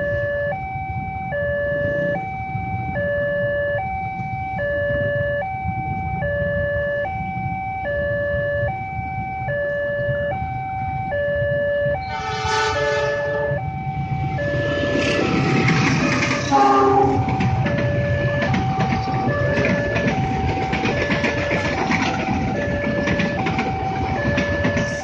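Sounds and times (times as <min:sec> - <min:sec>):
level crossing two-tone alarm: 0:00.0 - 0:25.0
train rumble: 0:00.0 - 0:25.0
train horn: 0:12.0 - 0:13.7, 0:16.1 - 0:17.5.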